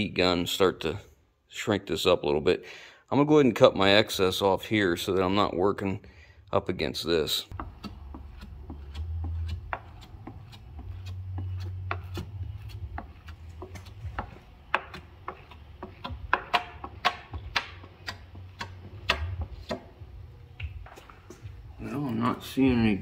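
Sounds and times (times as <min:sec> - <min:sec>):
squeegee scraping wet film on glass: 0:07.5 - 0:19.9
low hum: 0:07.5 - 0:22.9.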